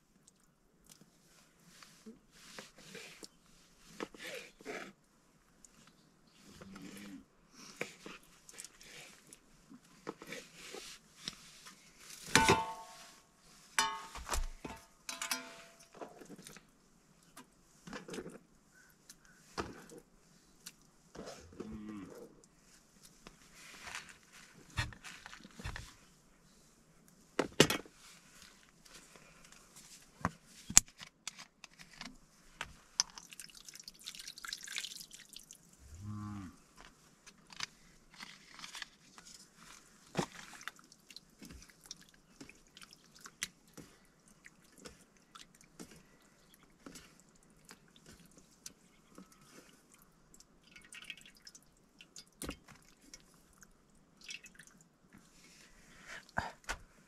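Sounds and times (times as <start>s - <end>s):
rustle: 0.9s - 33.0s, 35.5s - 50.3s
cow mooing: 35.9s - 36.6s.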